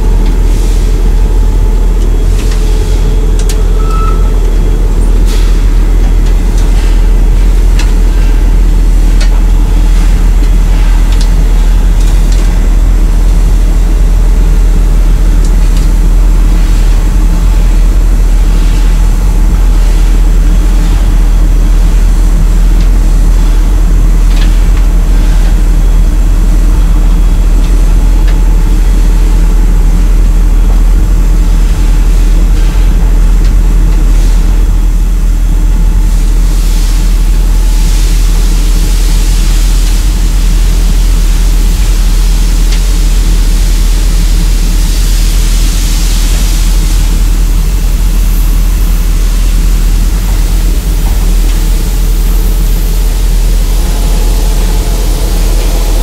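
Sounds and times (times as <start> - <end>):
loud low drone: 0.0 - 56.0
steady hum tones: 0.0 - 56.0
high hiss: 36.1 - 56.0.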